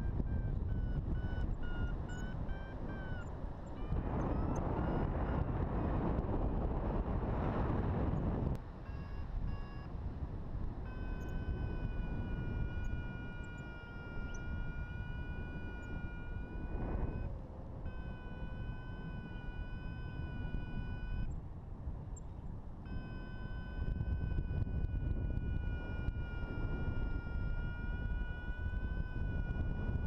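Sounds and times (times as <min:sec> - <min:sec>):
wind rushing over microphone: 0:00.0 - 0:30.0
short beeps: 0:08.9 - 0:09.9, 0:17.9 - 0:21.3, 0:22.9 - 0:28.2.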